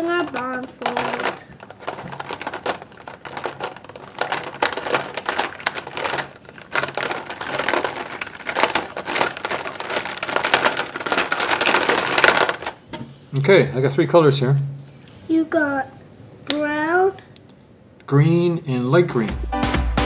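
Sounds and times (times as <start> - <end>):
plastic markers rattling in a tub: 0.0 - 12.8.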